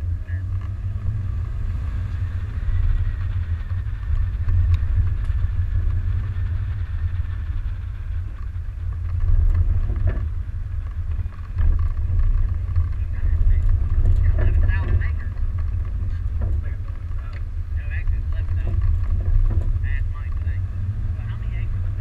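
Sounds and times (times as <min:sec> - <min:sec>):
vehicle rumbling on dirt trail: 0:00.0 - 0:22.0
knocks over bumps: 0:08.2 - 0:22.0.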